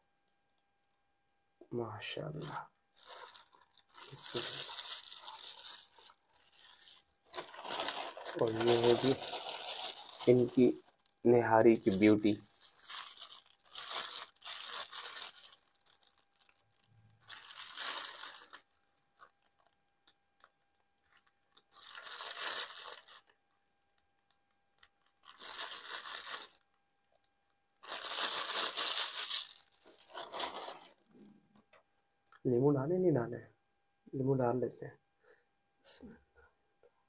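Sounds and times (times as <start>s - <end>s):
plastic bag crinkling: 2.2s - 23.4s, 24.0s - 31.2s.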